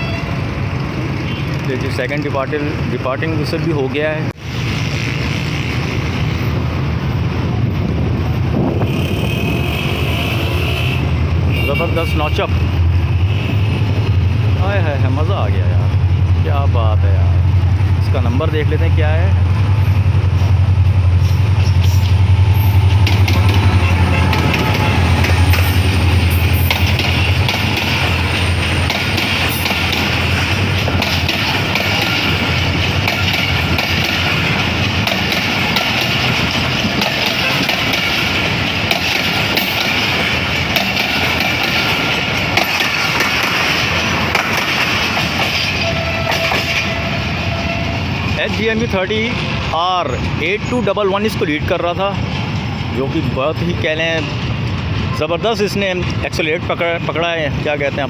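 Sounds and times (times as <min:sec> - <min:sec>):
train wheels rumbling on track: 0:00.0 - 0:58.0
locomotive engine throbbing: 0:12.4 - 0:56.7
wheels clicking over rail joints: 0:21.6 - 0:49.0.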